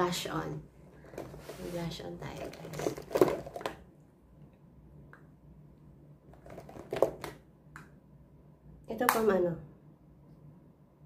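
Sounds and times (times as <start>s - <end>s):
faint low hum: 0.0s - 11.0s
makeup items clicking and rustling: 2.2s - 3.8s, 6.3s - 7.4s.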